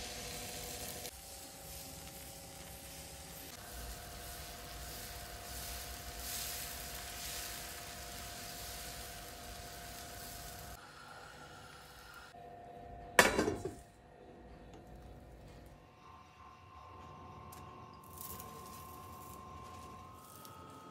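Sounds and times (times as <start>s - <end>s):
batter sizzling on a hot pan: 0.0s - 12.4s, 18.0s - 20.9s.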